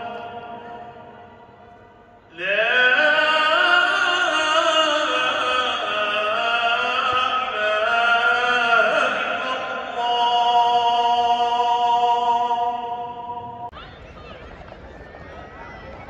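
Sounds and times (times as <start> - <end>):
man chanting: 0.0 - 1.2, 2.3 - 13.6.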